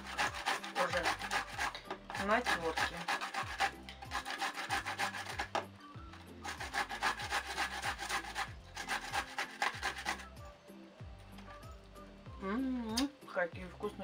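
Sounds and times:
cucumber grated on a hand grater: 0:00.0 - 0:05.6, 0:06.2 - 0:10.3.

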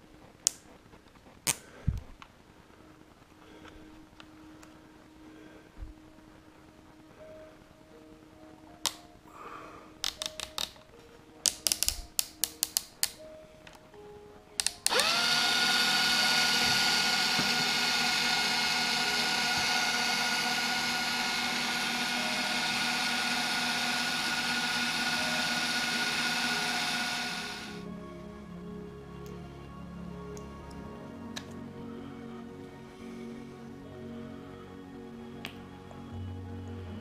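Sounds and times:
drill handling clicks: 0:14.6 - 0:27.8
electric drill motor running: 0:14.6 - 0:27.8.

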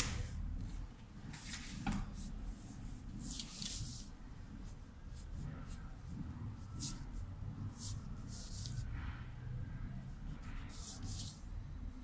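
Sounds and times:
low room hum: 0:00.0 - 0:12.0
pencil scratching on paper: 0:10.3 - 0:11.4.

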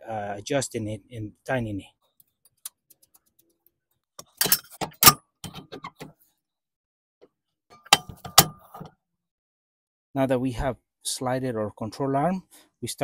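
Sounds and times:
metal parts clanking: 0:04.2 - 0:06.1, 0:07.8 - 0:08.9.

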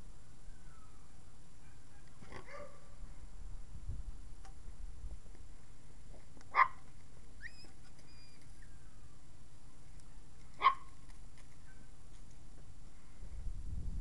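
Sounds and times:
puppy yips: 0:07.4 - 0:09.0, 0:10.6 - 0:10.9, 0:11.6 - 0:11.9
faint high chirps: 0:07.4 - 0:09.2.

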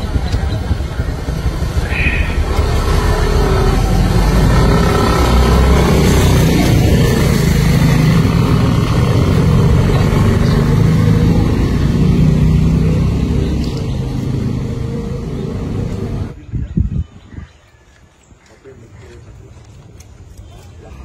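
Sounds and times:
vehicle engine rumbling: 0:00.0 - 0:16.4.

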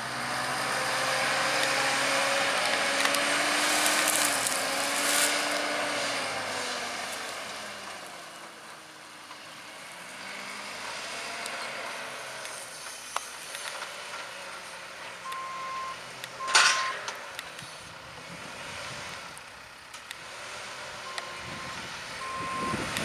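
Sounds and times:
diesel engine running: 0:00.0 - 0:23.0
reversing alarm beeps: 0:15.2 - 0:17.0, 0:21.1 - 0:22.9.

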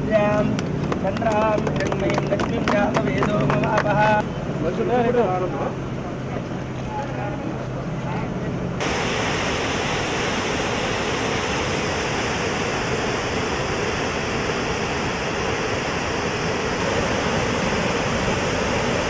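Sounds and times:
water gushing through sluice gate: 0:08.8 - 0:19.0.

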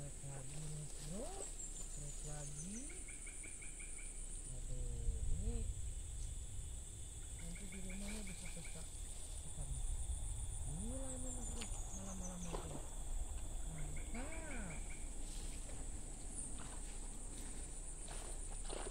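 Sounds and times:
insects buzzing high-pitched: 0:00.0 - 0:18.9
low rising and falling calls: 0:10.6 - 0:15.5.

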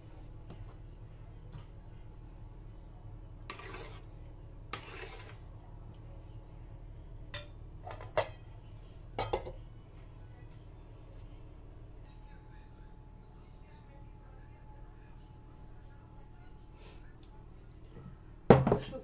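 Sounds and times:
low steady hum: 0:00.0 - 0:19.0
cookware scraping: 0:03.4 - 0:05.5.

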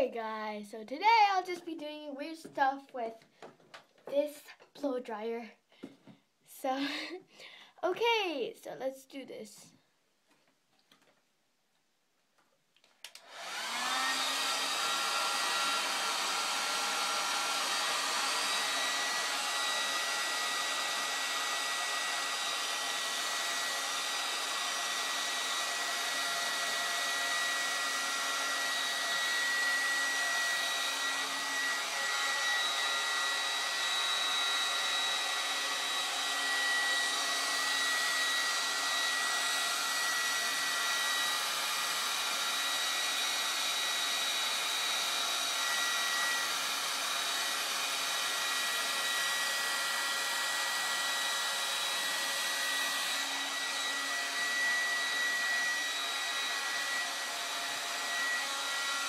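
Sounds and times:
hair dryer running: 0:06.8 - 0:07.2, 0:13.0 - 0:59.0.

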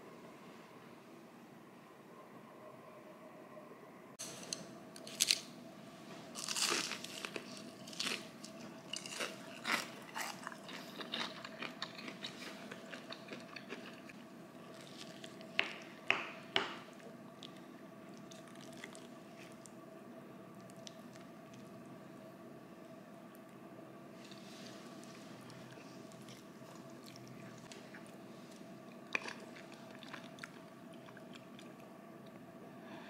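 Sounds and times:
faint steady hum: 0:00.0 - 0:33.0
crunching fried chicken: 0:06.4 - 0:15.7.

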